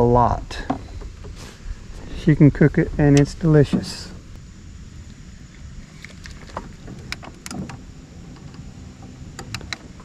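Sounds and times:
electric trolling motor humming: 2.8 - 10.0
clicks and knocks from gear: 9.3 - 10.0.

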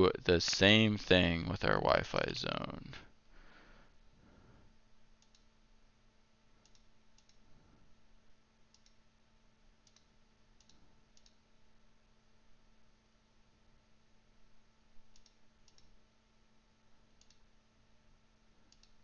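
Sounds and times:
low steady hum: 0.0 - 19.0
computer mouse clicks: 5.2 - 5.5, 6.6 - 7.5, 8.7 - 9.0, 9.8 - 11.4, 15.1 - 16.0, 17.2 - 17.5, 18.7 - 19.0.

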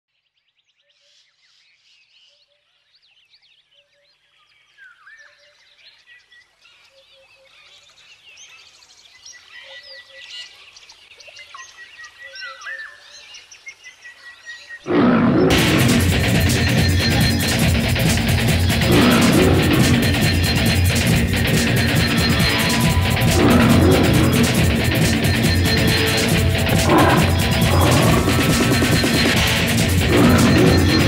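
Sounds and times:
bird calls and chirps: 0.1 - 31.0
loud music: 15.5 - 31.0.

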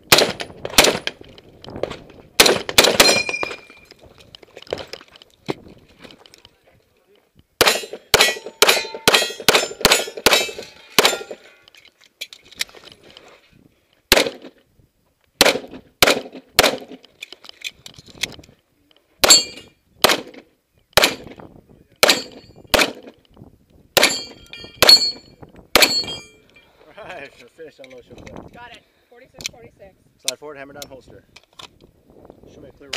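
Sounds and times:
pistol shots: 2.4 - 3.6, 7.6 - 11.4, 14.1 - 14.5, 15.4 - 17.0, 19.2 - 20.4, 21.0 - 21.3, 22.0 - 23.1
bullets clanging on steel targets: 2.9 - 3.9, 7.6 - 11.6, 19.2 - 19.8, 22.0 - 22.5, 24.0 - 26.6.

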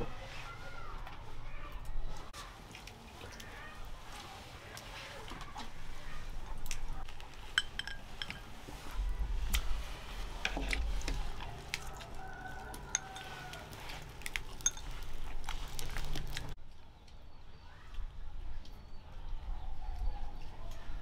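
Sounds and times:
chopsticks clinking on ceramic bowls: 7.5 - 8.6, 11.8 - 13.7, 14.5 - 15.1.

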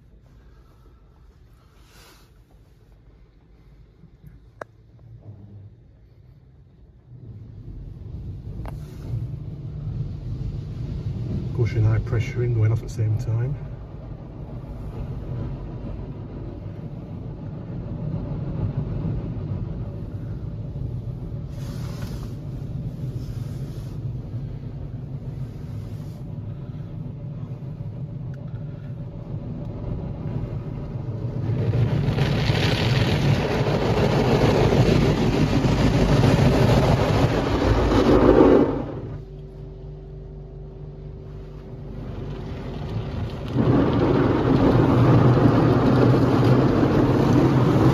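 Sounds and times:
car wash machine rumble: 0.0 - 47.9
water running over car: 29.3 - 39.2, 41.5 - 47.9.

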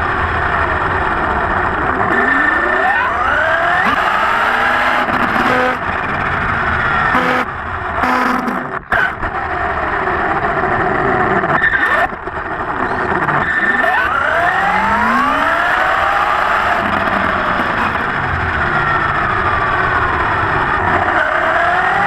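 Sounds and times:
tyres and gears rumbling: 0.0 - 22.0.

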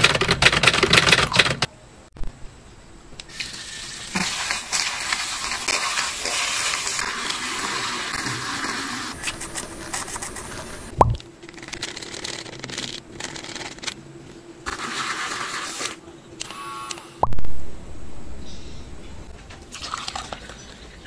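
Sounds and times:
milk frother whirring: 4.2 - 10.9.

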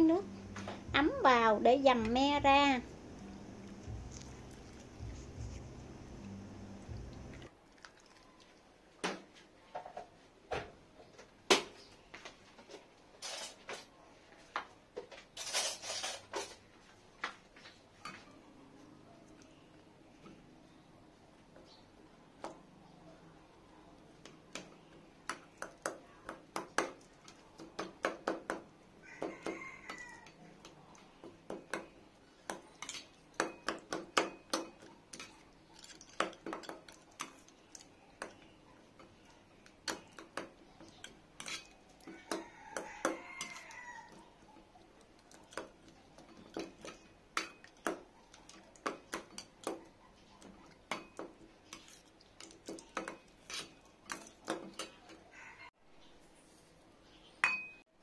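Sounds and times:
spoon clinking on steel bowl: 57.4 - 57.8.

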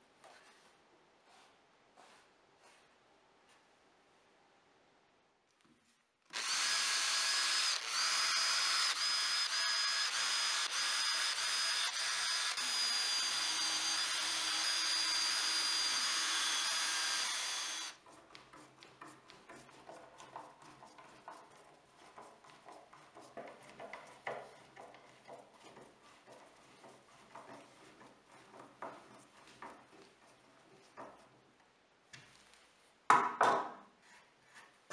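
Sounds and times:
cordless drill whining: 6.3 - 18.0.

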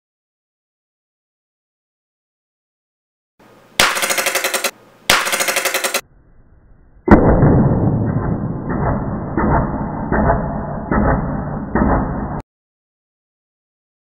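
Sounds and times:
paintball shot striking block: 3.8 - 6.0
rumbling noise with knocks: 7.0 - 12.4.

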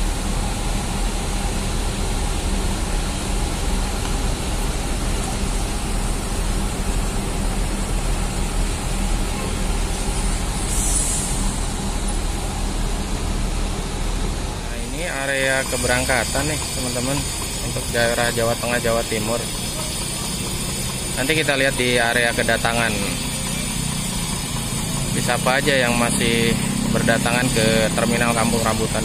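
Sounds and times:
diesel bus engines idling: 0.0 - 29.0
faint traffic hum: 0.0 - 29.0
short hiss: 10.6 - 11.7.

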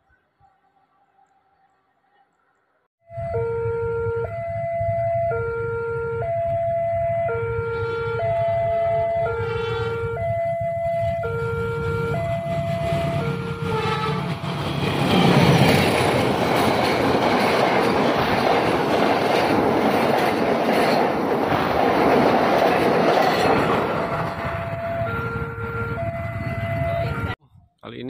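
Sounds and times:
level crossing alarm: 3.1 - 14.4, 23.6 - 27.4
train wheels on rails: 10.9 - 25.4.

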